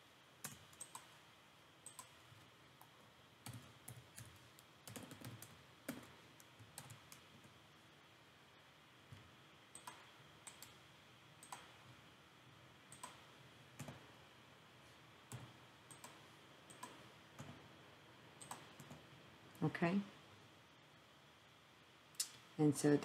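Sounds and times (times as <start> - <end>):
low room hum: 0.0 - 23.0
keyboard and mouse clicks: 0.4 - 1.2, 1.8 - 2.2, 2.8 - 7.5, 9.1 - 10.8, 11.4 - 11.8, 12.9 - 14.0, 15.3 - 17.6, 18.4 - 19.0.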